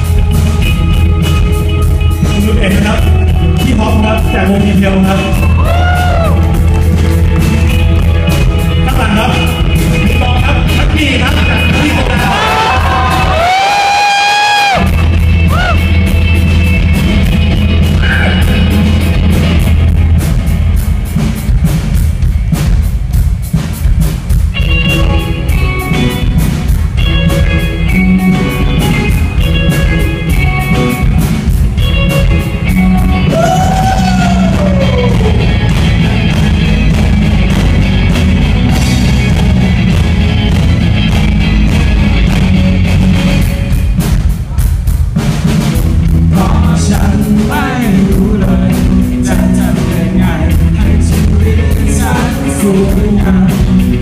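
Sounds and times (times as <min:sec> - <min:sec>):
rock band playing: 0:00.0 - 0:54.0
man singing: 0:02.1 - 0:06.4, 0:08.7 - 0:14.0, 0:33.2 - 0:35.7, 0:46.2 - 0:54.0.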